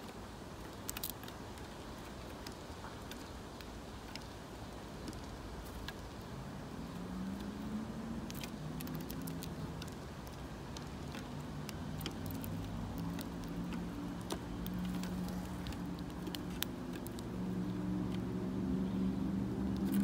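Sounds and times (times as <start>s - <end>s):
sparrows pecking on hard surface: 0.0s - 20.0s
engine humming: 4.7s - 20.0s.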